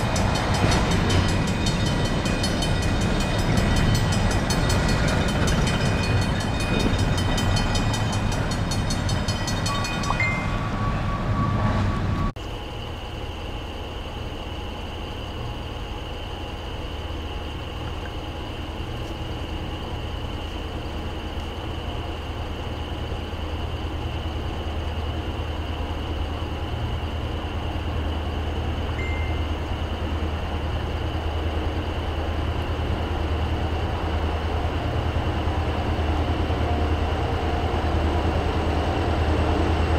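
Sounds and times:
crossing bell ringing: 0.0 - 12.3, 29.0 - 30.0
diesel locomotive rumble: 0.0 - 39.9.

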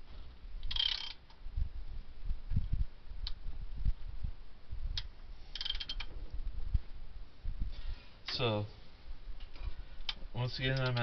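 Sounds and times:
ratchet wrench clicking: 0.6 - 1.2, 5.5 - 6.1.

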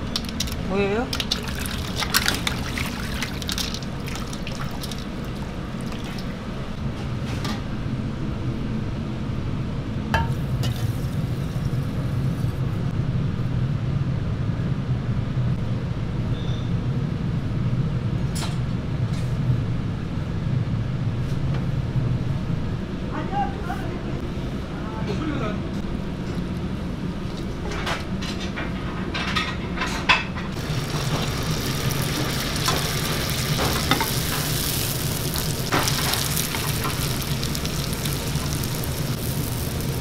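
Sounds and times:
noodles washed in water splashing: 0.0 - 6.4
low kitchen hum: 0.0 - 40.0.

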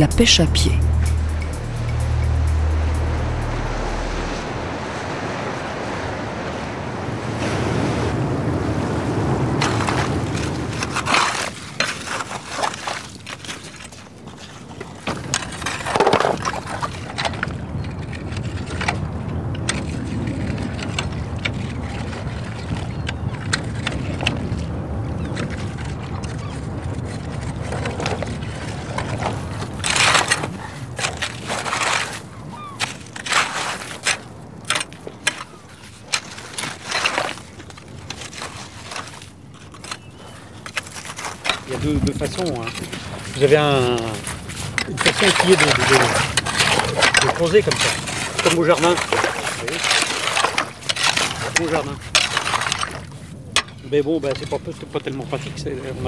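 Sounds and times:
small waves lapping: 0.0 - 56.0
wind: 0.0 - 56.0
knocks and scrapes: 32.8 - 56.0.

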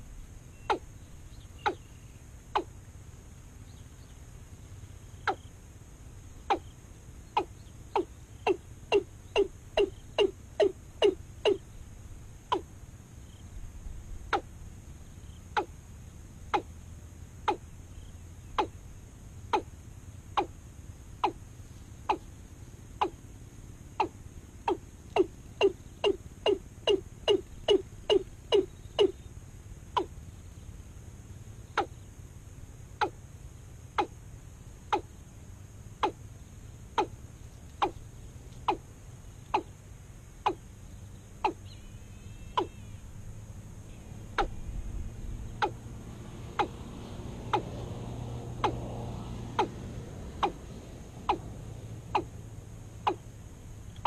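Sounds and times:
higher wavering bird call: 1.6 - 2.0, 7.4 - 11.7, 24.0 - 29.3, 41.4 - 43.2, 43.9 - 45.9, 46.5 - 46.8, 49.6 - 49.8, 50.4 - 50.6, 52.1 - 52.3.

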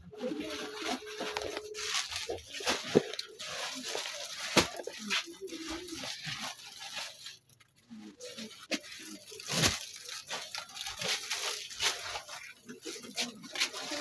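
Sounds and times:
cloth rustling: 0.2 - 14.0.

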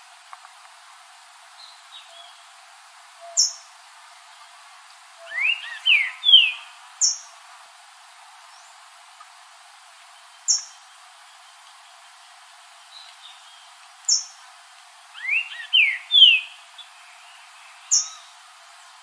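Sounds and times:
bird singing whistled notes: 5.2 - 7.3, 15.1 - 18.6.

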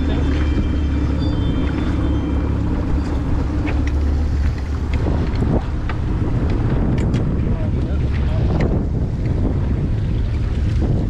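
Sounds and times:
boat motor humming: 0.0 - 11.0
wind noise: 0.0 - 11.0.

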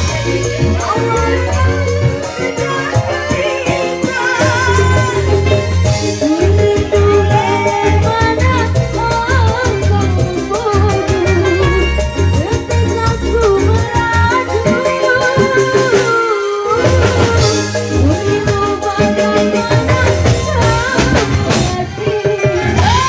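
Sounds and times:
drum kit dance beat: 0.0 - 23.0
woman singing into a microphone: 0.0 - 23.0.

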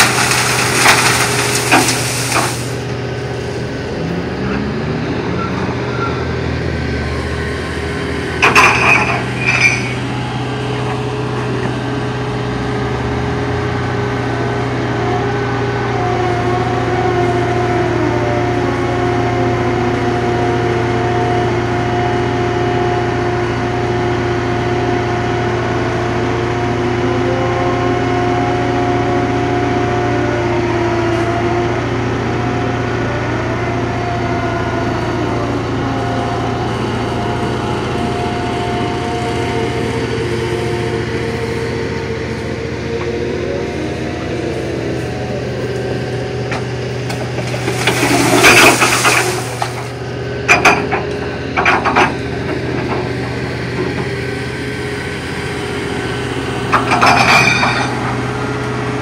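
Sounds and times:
diesel engine drone: 0.0 - 59.0
whining drive: 31.2 - 59.0.

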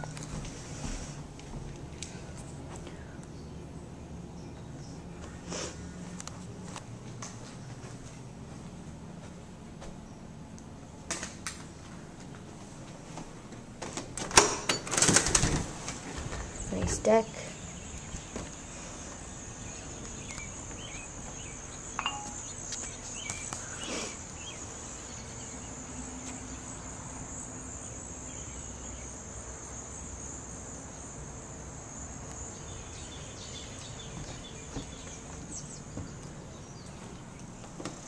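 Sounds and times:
insects chorus: 16.4 - 38.0.

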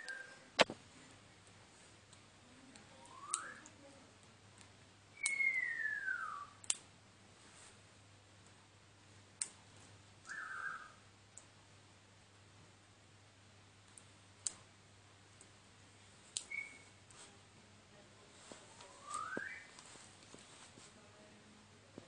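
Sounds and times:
low steady hum: 0.0 - 22.0
fingers handling rubber bands clicking: 6.6 - 6.8, 13.9 - 14.6.

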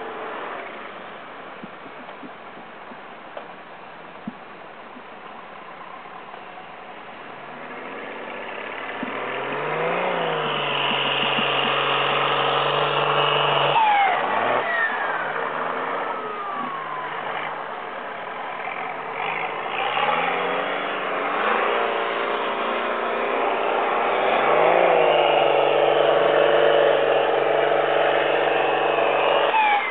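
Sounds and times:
off-road engines revving: 7.4 - 29.9.

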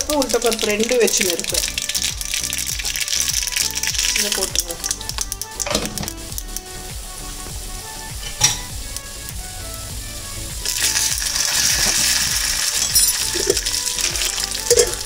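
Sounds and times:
oil sizzling in a pan: 0.0 - 15.0
spoon stirring: 10.7 - 15.0.

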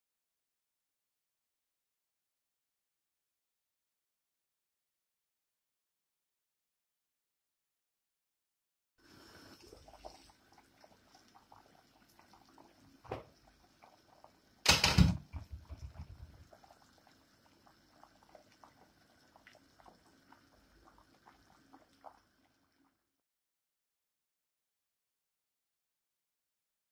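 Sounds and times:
water boiling in a pot: 9.0 - 23.2
knock: 14.7 - 16.3.

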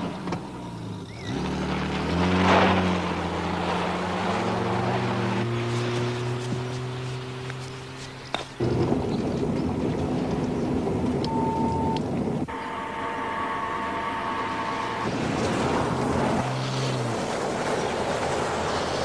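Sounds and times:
car engine: 0.0 - 11.4, 12.4 - 19.0
road noise: 0.0 - 19.0
steady high tone: 11.3 - 15.2.

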